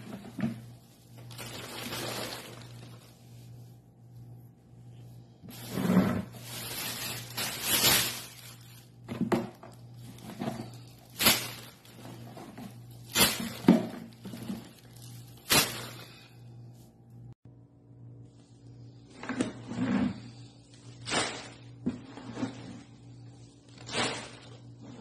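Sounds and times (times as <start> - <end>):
plastic bag rustling: 0.0 - 3.7, 5.5 - 16.3.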